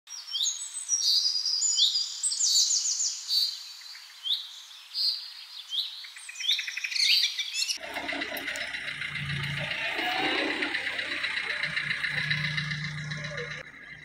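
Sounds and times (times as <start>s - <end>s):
birds chirping: 0.2s - 14.0s
birds rattling trills: 6.3s - 14.0s.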